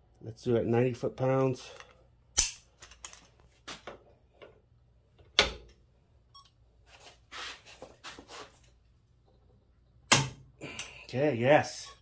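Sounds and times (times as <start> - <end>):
soft scuffing: 3.4 - 3.9, 6.8 - 8.6.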